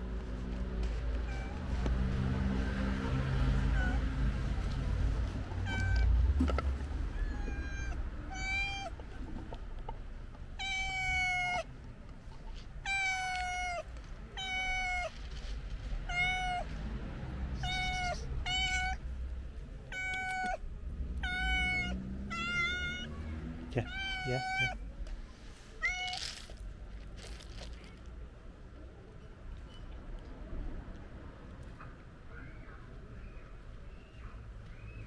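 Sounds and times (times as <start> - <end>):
cat meowing: 5.6 - 6.1, 7.1 - 9.0, 10.6 - 11.7, 12.8 - 15.1, 16.1 - 16.7, 17.6 - 19.0, 19.9 - 20.6, 21.2 - 23.2, 23.8 - 24.8, 25.8 - 26.5.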